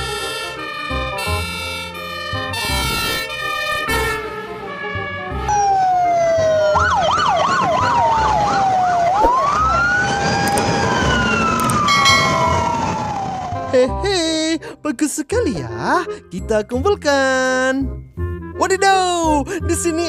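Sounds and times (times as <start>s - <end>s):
background music: 0.0s - 10.8s, 11.4s - 20.0s
fire engine sirens wailing and yelping: 0.0s - 14.0s.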